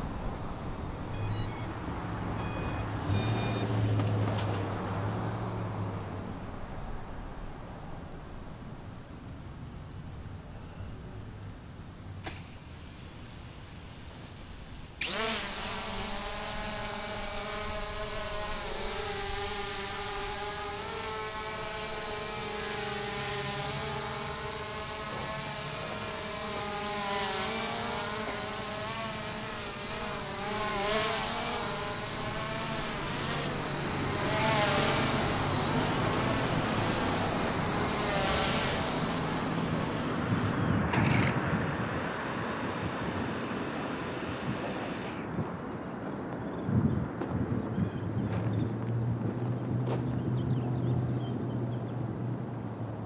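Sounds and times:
drone motors buzzing whine: 0.0 - 9.8, 10.4 - 46.6
rushing air noise: 29.2 - 45.7.

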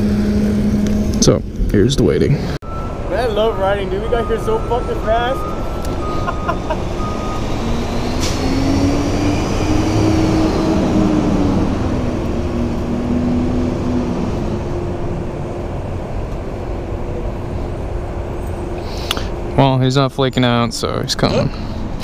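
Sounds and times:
traffic rumble: 0.0 - 22.0
vehicle passing by: 2.3 - 19.6.

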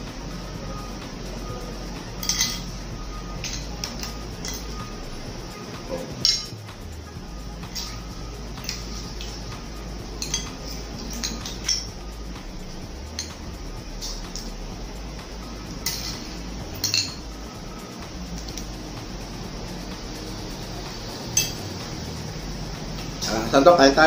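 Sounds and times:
steady low hum: 0.0 - 24.0
cutlery clinking on ceramic plates: 2.2 - 2.7, 5.9 - 6.6, 10.2 - 11.9, 15.8 - 17.2.

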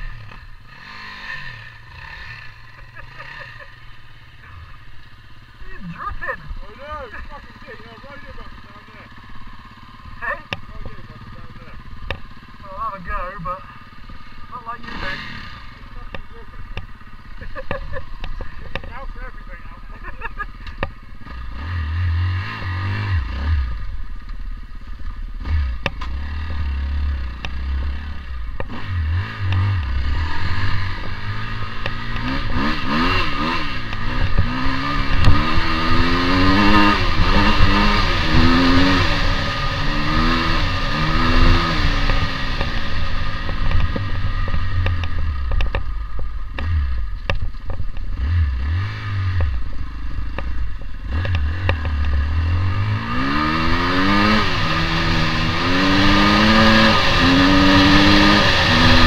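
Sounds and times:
two-stroke motorcycle engine revving: 0.0 - 59.0
motorcycle clattering over rough ground: 31.0 - 39.4, 41.2 - 48.3.

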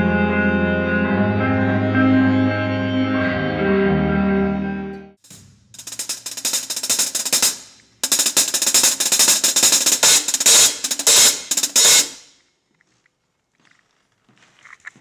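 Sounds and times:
cymbals crashing: 5.2 - 12.3
fast drum kit playing: 5.3 - 12.2.

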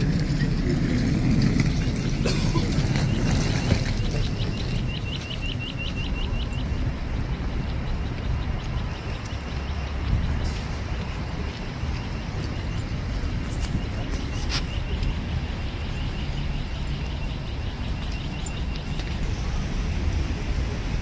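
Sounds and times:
city traffic rumble: 0.0 - 21.0
crossing signal chirping: 2.8 - 19.6.

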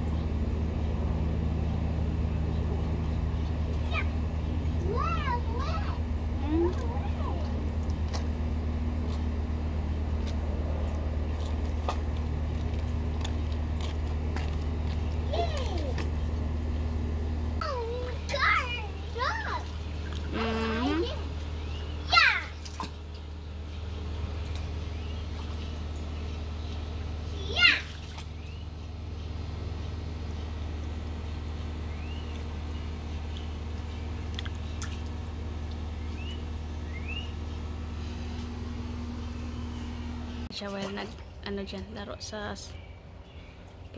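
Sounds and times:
low mechanical hum: 0.0 - 43.9
bird chirping: 36.0 - 37.6.

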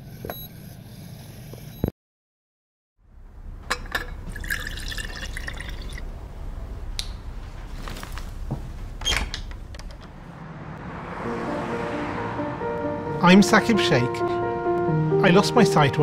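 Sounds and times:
light trickling: 3.6 - 10.1.

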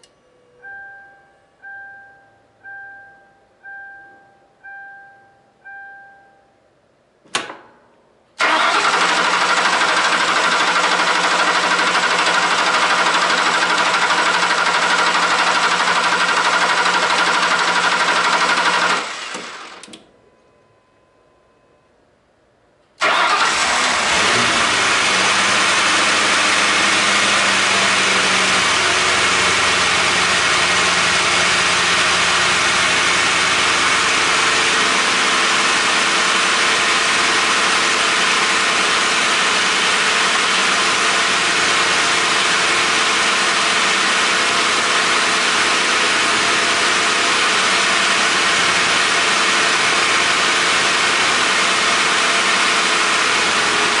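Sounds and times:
car engine starting and idling: 8.4 - 20.2, 22.8 - 54.0.

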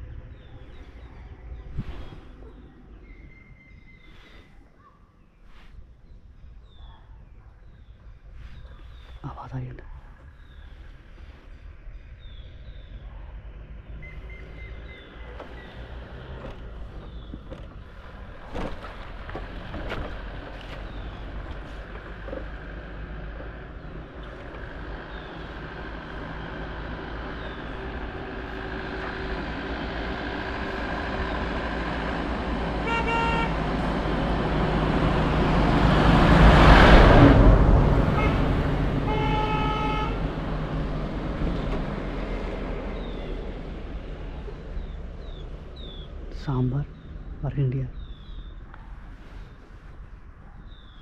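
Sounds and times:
motor vehicle passing: 7.8 - 51.0
vehicle horn honking: 32.8 - 33.6, 38.1 - 40.3.

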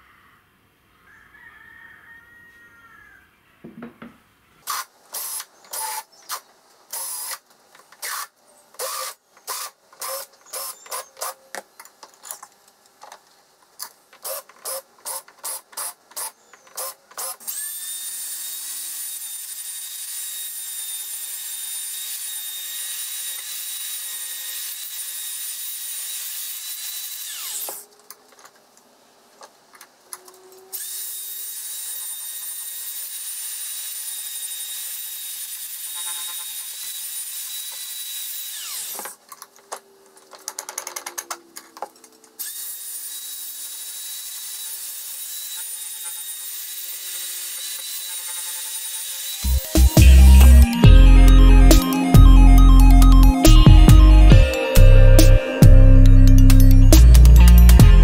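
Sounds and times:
drill bursts chamfering metal: 4.6 - 7.4, 8.0 - 11.4, 14.2 - 27.8, 30.8 - 39.1
abrasive pad tool whining: 49.4 - 58.0.

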